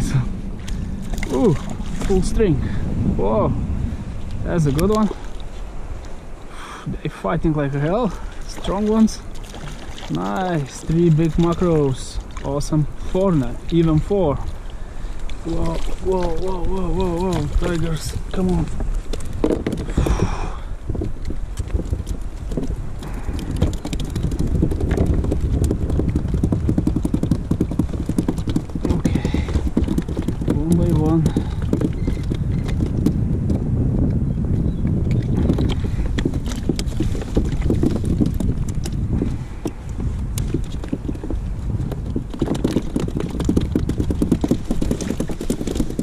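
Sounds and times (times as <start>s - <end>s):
fish flapping on plastic deck: 21.1s - 33.1s, 35.4s - 39.1s, 39.7s - 46.0s.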